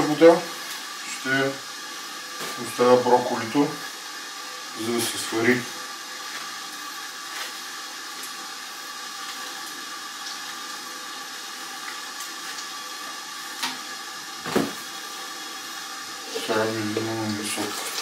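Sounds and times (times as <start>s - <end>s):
water heating hiss in rice cooker: 0.0s - 18.0s
knock: 14.5s - 14.8s.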